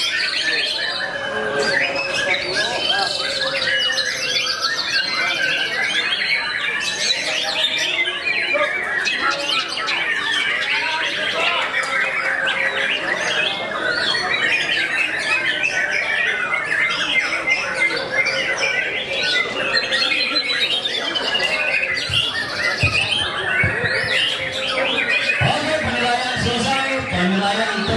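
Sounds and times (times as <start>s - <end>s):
chorus of songbirds singing: 0.0s - 27.9s
low thumps: 22.0s - 24.2s.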